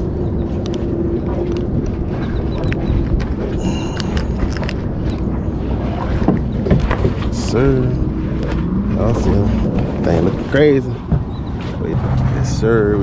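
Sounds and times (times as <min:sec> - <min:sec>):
water rumble: 0:00.0 - 0:13.0
wind: 0:00.0 - 0:13.0
small clicks and knocks of gear: 0:00.5 - 0:05.3.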